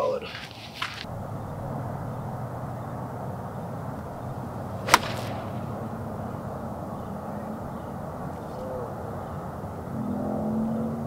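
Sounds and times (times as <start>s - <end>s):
golf club striking ball: 3.0s - 6.8s.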